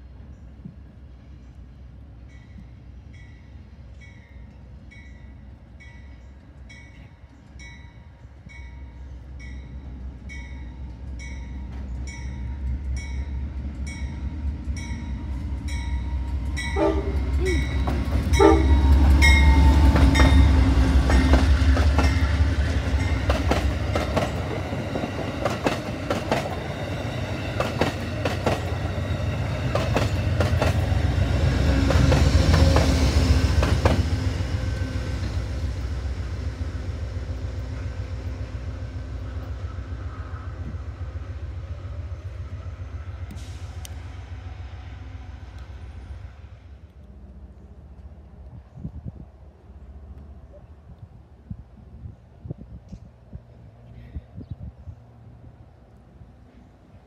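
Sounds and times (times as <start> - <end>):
diesel locomotive rumble: 0.0 - 57.0
train bell dinging: 2.2 - 23.6
train wheels clickety-clack: 10.8 - 35.6
train horn: 16.6 - 21.3.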